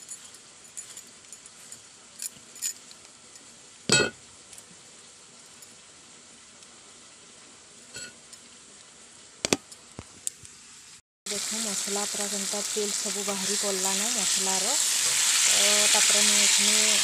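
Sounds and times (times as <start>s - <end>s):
light clinks and taps: 0.0s - 4.7s
spices sizzling in oil: 0.0s - 17.0s.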